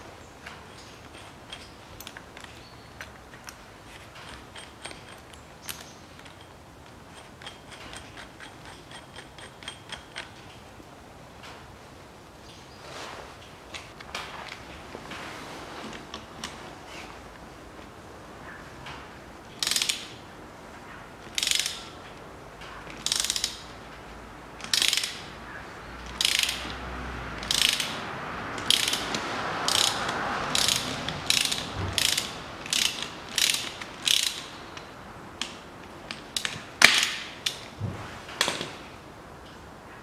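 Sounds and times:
ratchet wrench clicking: 4.1s - 10.4s, 19.6s - 20.2s, 21.3s - 21.9s, 23.0s - 23.7s, 24.6s - 25.3s, 26.1s - 26.8s, 27.4s - 37.6s.

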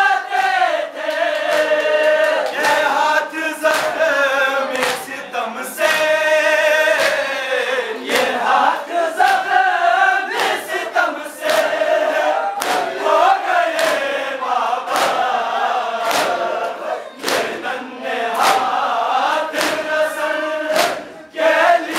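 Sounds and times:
men chanting a lament: 0.0s - 21.9s.

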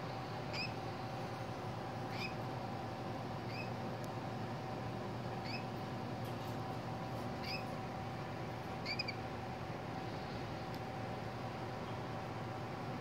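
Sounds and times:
steady hum: 0.0s - 13.0s
cockatiel chirping: 0.5s - 0.7s, 2.1s - 2.4s, 3.5s - 3.7s, 5.4s - 5.6s, 7.4s - 7.7s, 8.8s - 9.2s.

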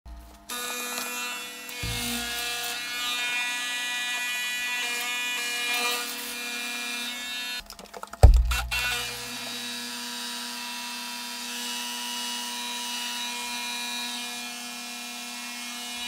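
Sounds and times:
low thump: 8.2s - 9.0s.

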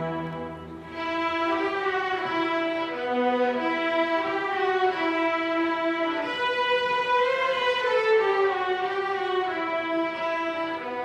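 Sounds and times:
string orchestra playing: 0.0s - 11.0s.

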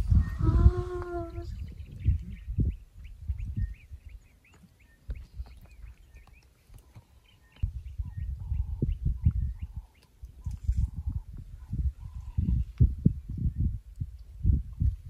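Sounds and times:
small birds chirping: 0.0s - 14.9s
wind rumbling on microphone: 0.0s - 15.0s.

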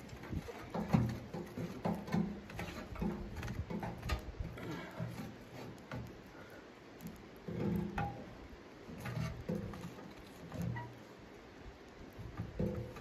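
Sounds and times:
knocks and clinks in metal stove: 0.0s - 6.1s, 7.4s - 11.0s, 12.3s - 13.0s.

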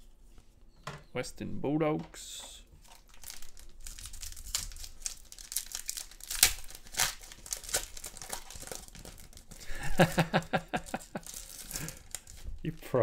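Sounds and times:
foil pack tearing and crinkling: 2.8s - 12.9s.

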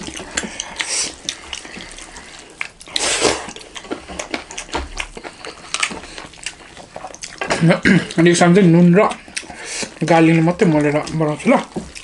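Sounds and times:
lip smacks and chewing: 0.0s - 8.3s, 8.9s - 12.0s.

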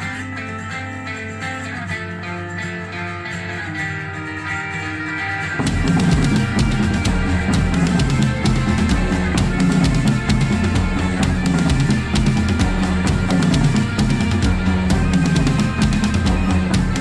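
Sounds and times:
backing track with bass and guitar: 0.0s - 17.0s
drum kit playing rock beat: 0.0s - 17.0s.

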